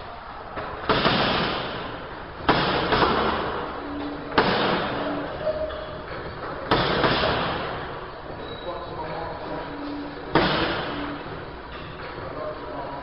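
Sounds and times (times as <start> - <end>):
punches on punching bag: 0.8 - 3.6, 4.4 - 5.0, 6.7 - 7.8, 10.3 - 11.0.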